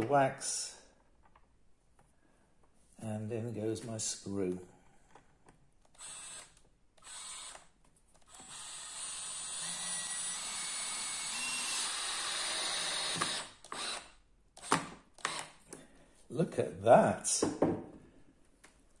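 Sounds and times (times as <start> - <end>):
cordless drill driving screw: 5.9 - 15.6.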